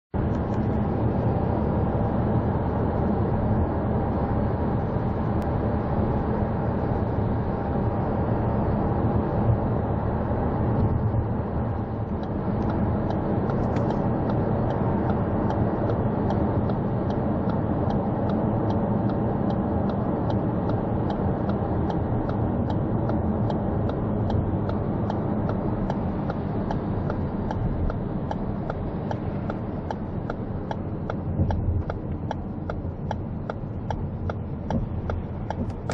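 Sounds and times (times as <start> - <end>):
tyre and road noise in car: 0.2 - 35.9
turn signal ticking: 10.7 - 35.9.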